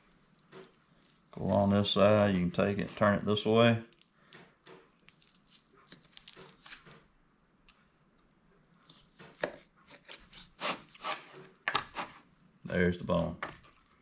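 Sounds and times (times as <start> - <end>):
knife cutting raw chicken: 8.8 - 12.1.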